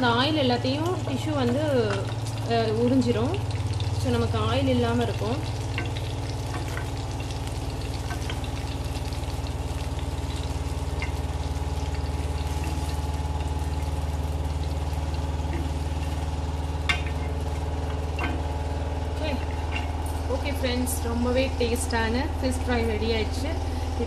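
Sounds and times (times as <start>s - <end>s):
hot oil crackling: 0.0s - 24.0s
low motor hum: 0.0s - 24.0s.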